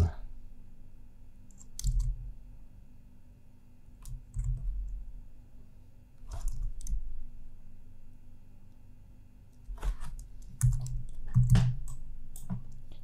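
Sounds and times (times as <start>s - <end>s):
keyboard and mouse clicks: 1.5s - 2.2s, 6.3s - 7.0s, 9.6s - 13.0s.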